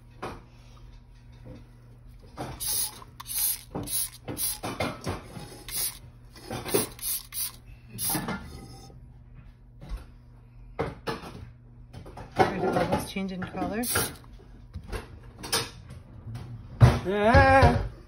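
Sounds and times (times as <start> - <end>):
spray bottle squirting: 2.6 - 4.8, 5.5 - 6.0, 6.6 - 8.2, 13.8 - 14.2.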